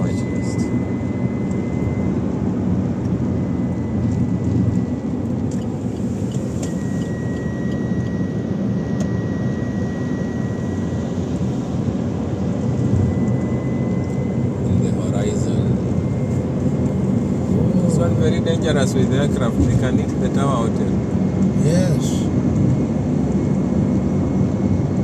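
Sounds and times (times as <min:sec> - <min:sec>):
car cabin road rumble: 0:00.0 - 0:09.6, 0:10.2 - 0:25.0.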